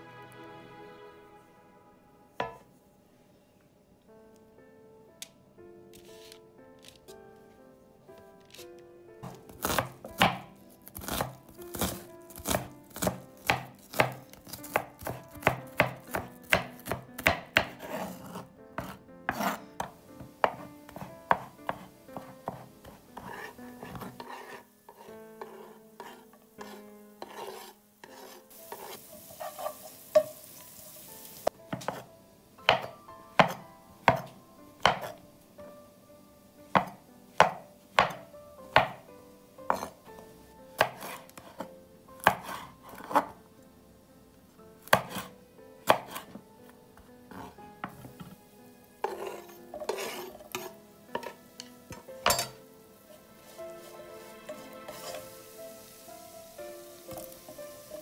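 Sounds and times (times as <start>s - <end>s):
wooden spoon stirring in frying pan: 2.4s - 2.7s, 9.2s - 32.1s, 39.7s - 40.1s, 40.8s - 43.3s, 44.9s - 58.0s
knife chopping on wooden board: 9.2s - 29.7s, 31.7s - 32.1s, 32.7s - 35.2s, 36.8s - 39.0s, 39.7s - 40.0s, 40.8s - 43.3s, 44.8s - 46.4s, 47.3s - 48.4s.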